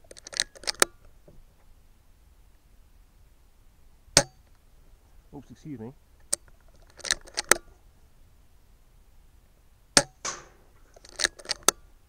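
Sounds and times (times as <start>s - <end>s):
rifle metallic clicks: 0.0s - 1.0s, 6.2s - 7.7s, 10.0s - 11.8s
rifle shot: 10.0s - 10.7s.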